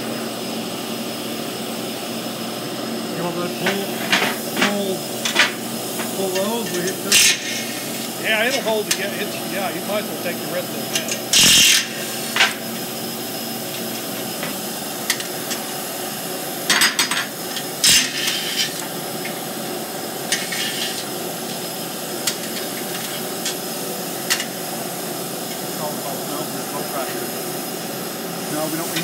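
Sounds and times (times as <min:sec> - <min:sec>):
steady machine hum: 0:00.0 - 0:29.0
metal tools clanking on wheel: 0:03.6 - 0:07.7.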